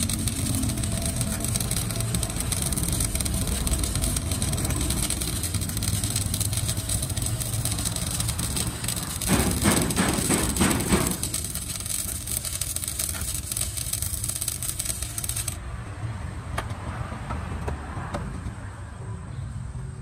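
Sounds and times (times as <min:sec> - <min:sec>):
steady low hum: 0:00.0 - 0:15.3
welding arc crackling: 0:00.0 - 0:15.6.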